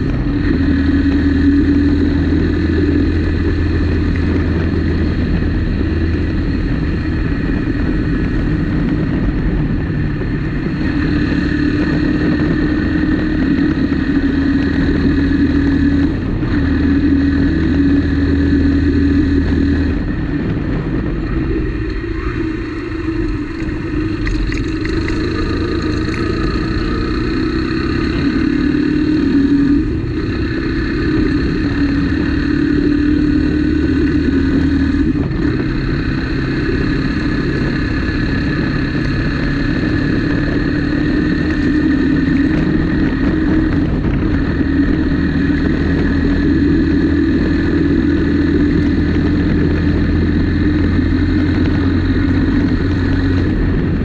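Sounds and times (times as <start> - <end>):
motorcycle engine running: 0.0 - 54.0.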